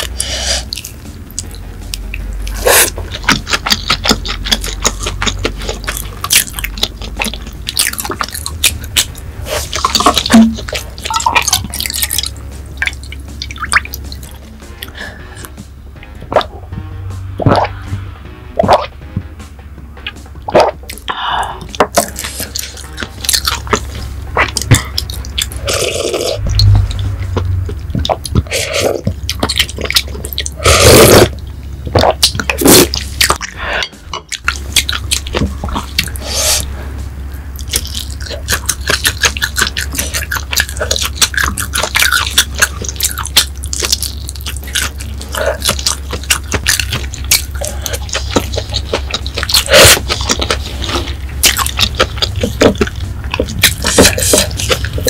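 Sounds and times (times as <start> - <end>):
wet chewing with lip smacks: 0.0 - 15.0, 21.7 - 30.6, 37.6 - 55.0
sipping and swallowing: 2.5 - 15.5, 17.4 - 17.8, 18.6 - 18.9, 20.5 - 36.7, 37.6 - 55.0.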